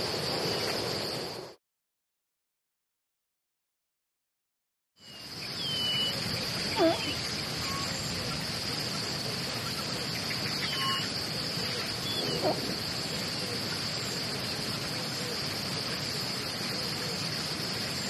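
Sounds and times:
crickets buzzing: 0.0s - 1.6s, 5.0s - 18.0s
outdoor ambience hiss: 0.0s - 1.6s, 5.0s - 18.0s
faint chirps: 5.0s - 18.0s
brief animal call: 6.7s - 7.8s.

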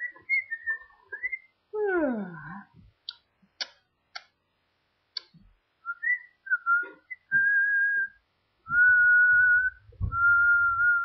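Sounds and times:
person whistling a slow tune: 5.9s - 11.0s.

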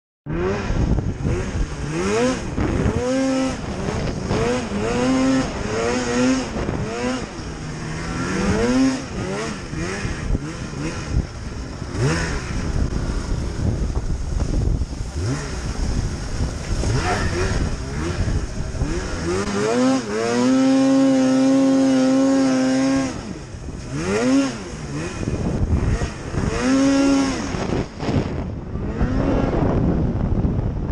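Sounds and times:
snowmobile engine revving: 0.3s - 30.4s.

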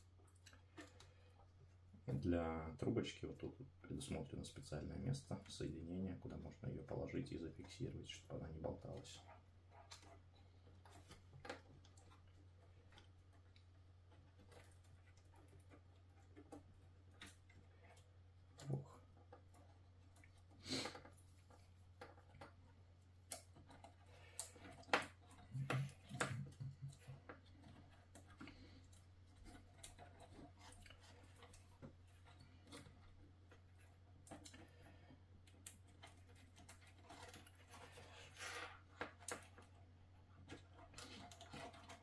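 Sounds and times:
small clicks and knocks of connectors: 9.7s - 42.0s.

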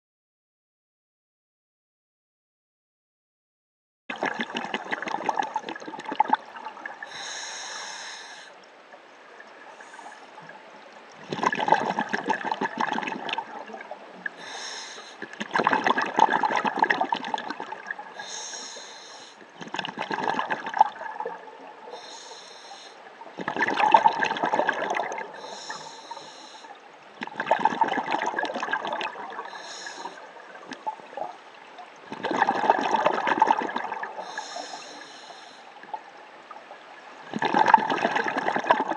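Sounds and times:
bubbling exhalation underwater: 4.1s - 7.2s, 11.1s - 14.5s, 15.2s - 18.4s, 19.5s - 21.8s, 23.4s - 25.8s, 27.2s - 31.4s, 32.0s - 34.8s, 37.3s - 38.9s
regulator inhale hiss: 7.0s - 8.6s, 9.7s - 10.3s, 14.4s - 15.2s, 18.2s - 19.4s, 21.9s - 23.1s, 25.4s - 26.8s, 29.5s - 30.3s, 34.2s - 35.8s.

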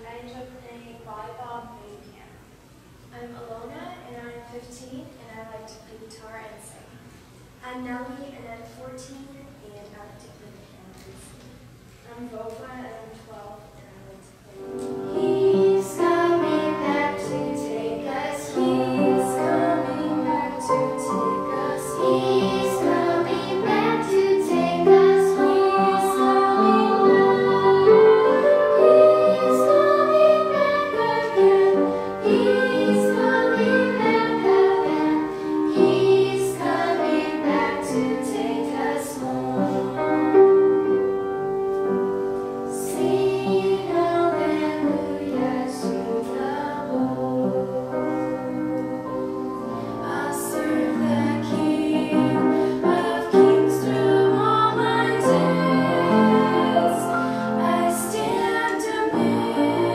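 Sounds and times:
children and women singing: 15.0s - 40.4s, 42.7s - 48.6s, 50.0s - 59.9s.

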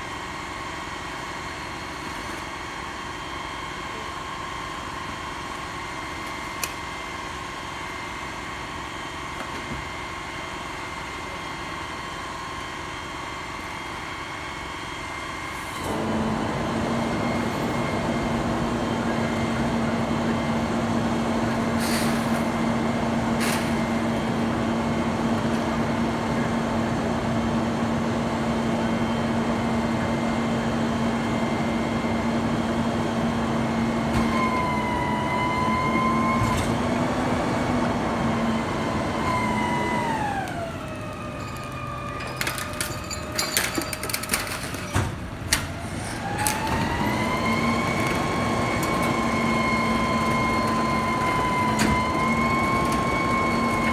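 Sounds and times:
garbage truck engine whining: 12.0s - 53.9s.

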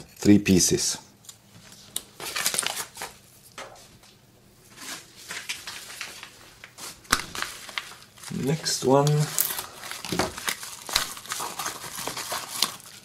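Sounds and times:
paper envelopes rustling: 1.5s - 3.3s, 4.7s - 13.0s.

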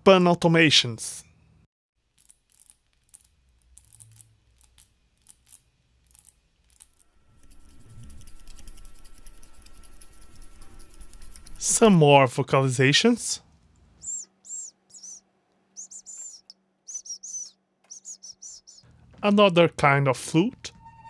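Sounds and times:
synthesized cricket chirps: 15.8s - 18.8s.

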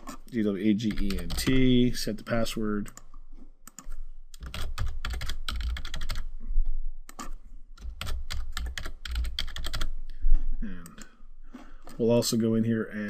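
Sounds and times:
computer keyboard typing: 0.8s - 3.1s, 3.7s - 6.3s, 7.1s - 9.9s.

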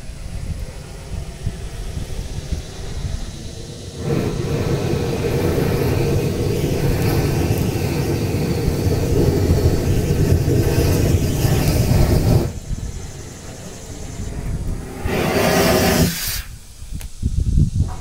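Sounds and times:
fire rumbling in barrel: 1.4s - 16.5s.

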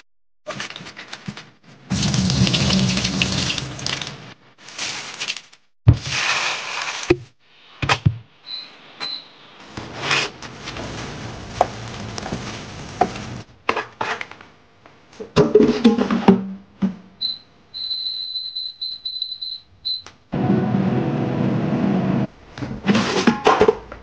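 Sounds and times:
high electronic beeps: 17.2s - 20.1s
air fryer whirring: 20.4s - 22.2s.

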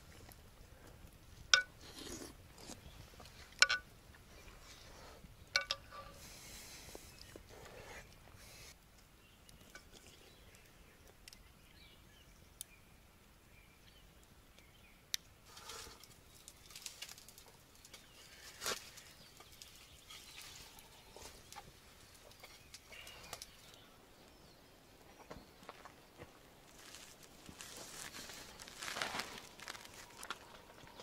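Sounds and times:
wood fire crackling: 13.9s - 24.4s, 25.6s - 31.0s
soft rustling: 25.6s - 30.9s.

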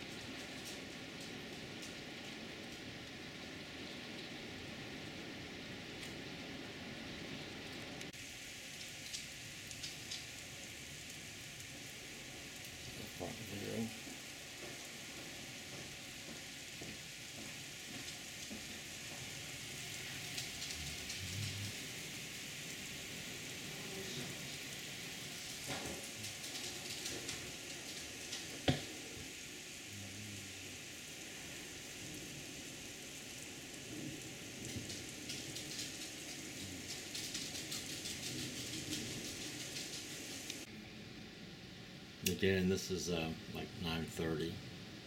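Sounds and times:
heavy rain through window: 0.0s - 45.0s.

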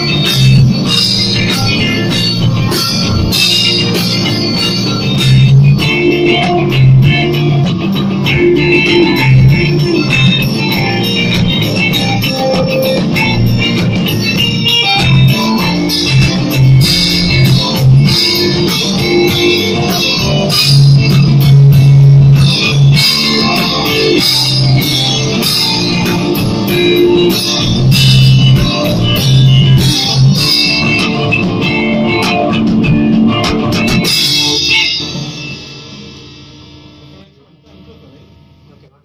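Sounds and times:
drums: 0.0s - 39.0s
electric bass: 0.0s - 39.0s
electric guitar: 0.0s - 39.0s.

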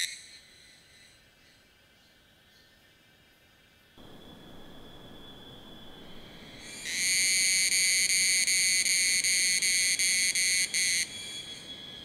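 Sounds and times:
distant cicadas whine: 0.0s - 12.0s
cicada ringing song: 4.0s - 12.0s.

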